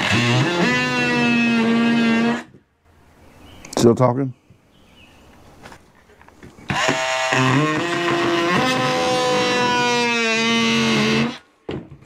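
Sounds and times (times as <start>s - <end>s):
power drill cutting plastic: 0.0s - 2.6s, 6.7s - 11.5s.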